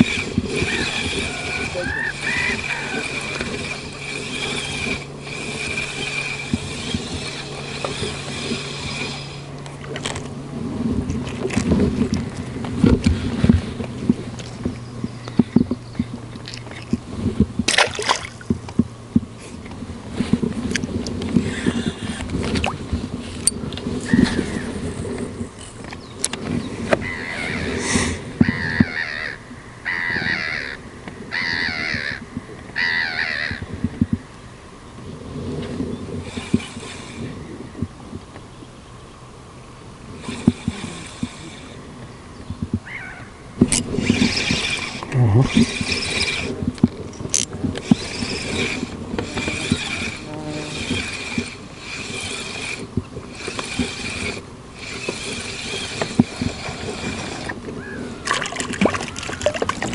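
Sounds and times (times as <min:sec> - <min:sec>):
bird calling: 0:00.0 - 0:07.6, 0:27.0 - 0:33.8, 0:42.0 - 0:43.5, 0:57.4 - 0:59.9
fishing reel gears whirring: 0:00.0 - 0:34.2, 0:35.2 - 0:38.0, 0:39.9 - 0:42.1, 0:42.8 - 0:59.9.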